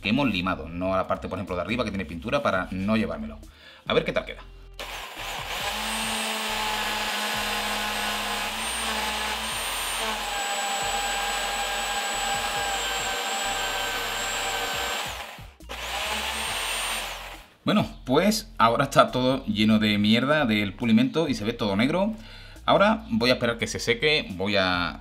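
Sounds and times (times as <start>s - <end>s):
electric drill running: 4.8s - 17.5s.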